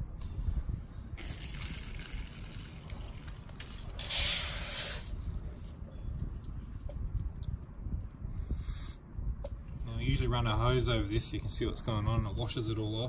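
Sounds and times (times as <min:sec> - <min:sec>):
steel media spilling into strainer: 0:01.2 - 0:05.2.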